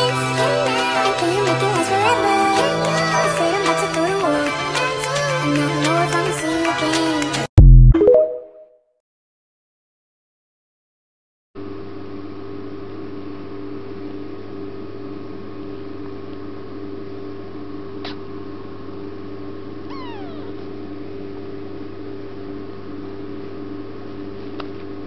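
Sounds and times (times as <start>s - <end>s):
kitten mewing: 19.8s - 20.6s.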